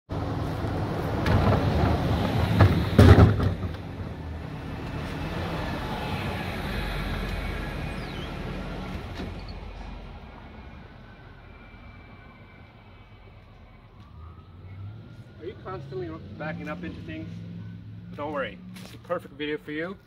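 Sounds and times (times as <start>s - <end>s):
plastic bin knocked over: 1.3s - 3.9s.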